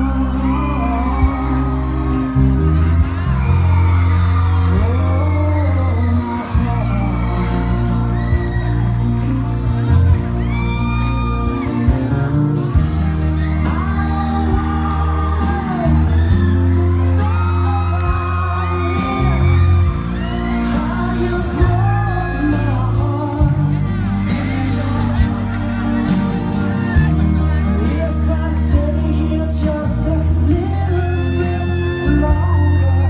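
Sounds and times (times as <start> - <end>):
pop song with singing: 0.0 - 33.0.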